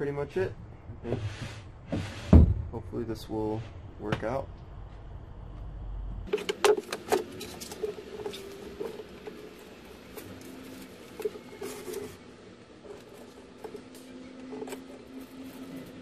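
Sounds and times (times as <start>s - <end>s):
low rumble: 2.5s - 6.3s
handling taps clicks and rustles: 6.3s - 16.0s.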